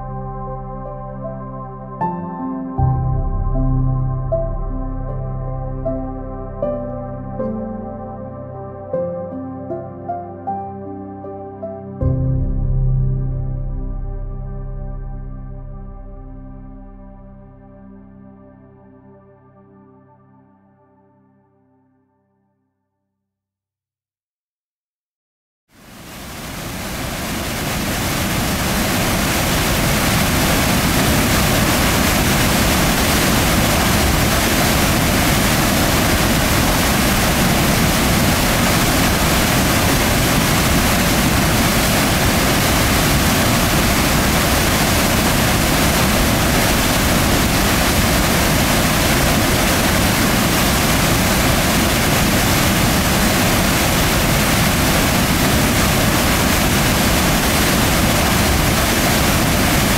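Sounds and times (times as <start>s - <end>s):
white water rushing through gorge: 25.9s - 59.9s.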